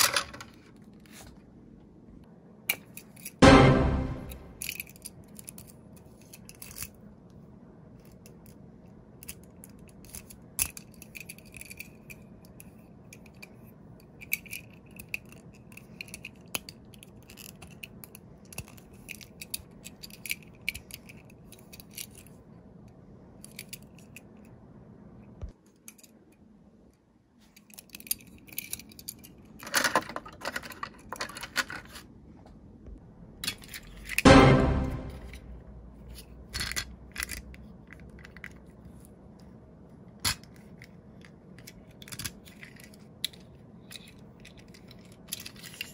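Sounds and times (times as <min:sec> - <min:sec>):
toy fire engine being handled: 0:00.0 - 0:01.4, 0:02.7 - 0:03.4, 0:04.6 - 0:07.1, 0:08.0 - 0:22.4, 0:23.4 - 0:24.4, 0:27.4 - 0:32.1, 0:33.4 - 0:34.3, 0:36.0 - 0:45.9.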